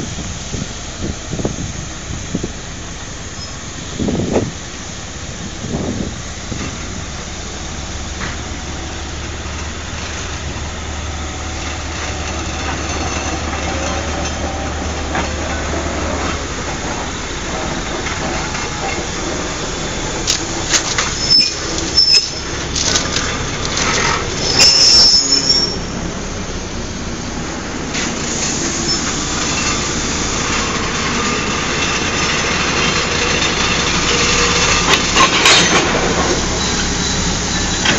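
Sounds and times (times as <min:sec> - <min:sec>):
diesel locomotive running: 0:00.0 - 0:37.9
wheel squeal: 0:03.3 - 0:03.7, 0:20.3 - 0:26.0, 0:28.0 - 0:37.9
metallic clanks: 0:31.9 - 0:37.9.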